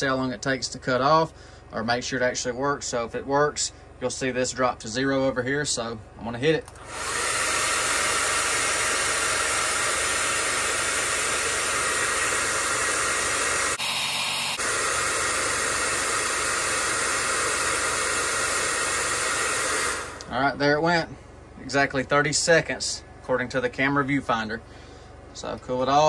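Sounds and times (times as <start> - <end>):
hair dryer blowing air: 6.7 - 20.4.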